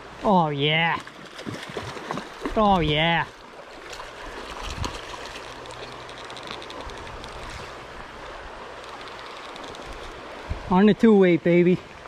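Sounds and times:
stream water running: 0.0s - 12.0s
fish splashing at the surface: 1.0s - 7.8s.

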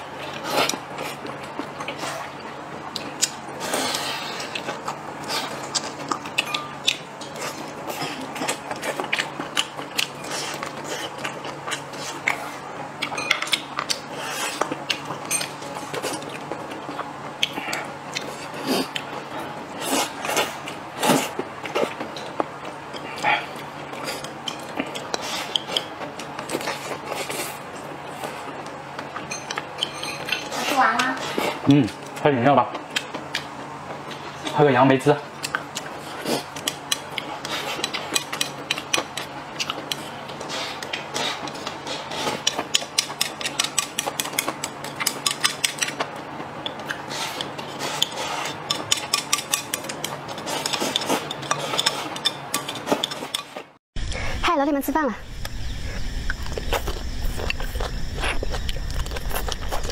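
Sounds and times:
person chewing: 0.2s - 34.5s, 35.4s - 54.4s, 55.2s - 59.9s
utensils clicking on porcelain bowls: 29.2s - 31.2s, 42.4s - 46.0s, 46.6s - 53.6s.

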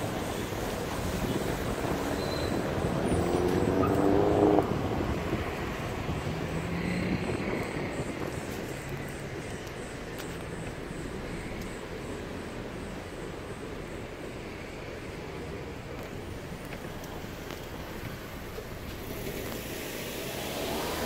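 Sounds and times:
road noise on wet asphalt: 0.0s - 21.0s
engine revving up: 3.2s - 4.9s, 19.1s - 21.0s.

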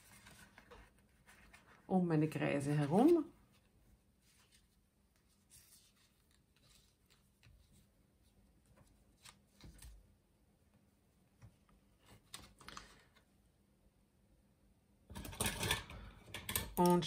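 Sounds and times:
paper card rustling: 0.0s - 7.9s, 12.0s - 13.2s.

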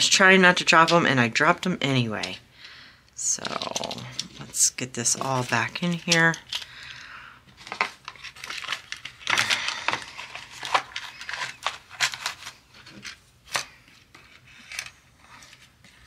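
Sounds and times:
paper pouch crinkling: 5.1s - 16.0s.

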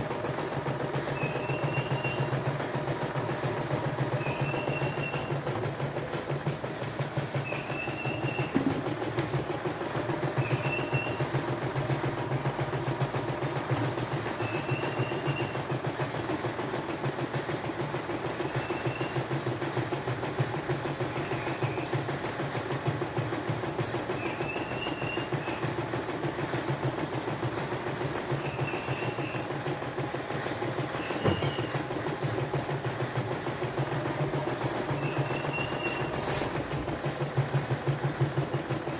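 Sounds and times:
low motor hum: 0.0s - 15.6s.

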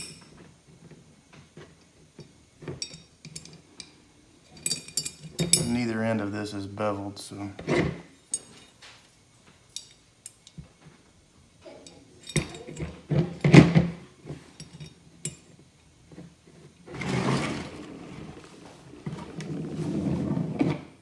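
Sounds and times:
small metal parts clinking: 2.8s - 5.9s, 9.7s - 10.6s, 11.7s - 13.6s.

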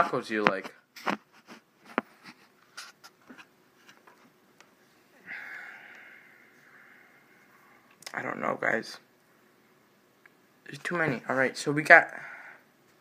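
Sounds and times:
person sighing: 5.2s - 7.3s.

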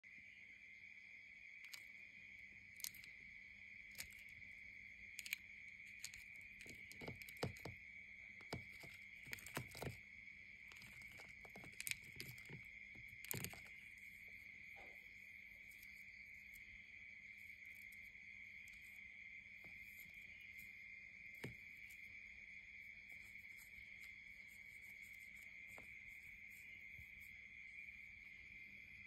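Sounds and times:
crickets trilling: 0.0s - 29.0s
light clicks and taps: 1.6s - 1.9s, 2.8s - 3.1s, 3.9s - 4.5s, 5.1s - 7.8s, 8.4s - 10.0s, 10.6s - 14.2s.

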